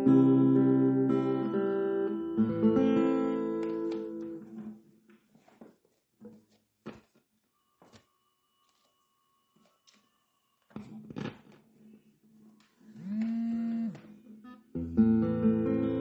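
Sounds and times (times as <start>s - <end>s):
acoustic guitar chords: 0.0s - 4.7s, 12.9s - 16.0s.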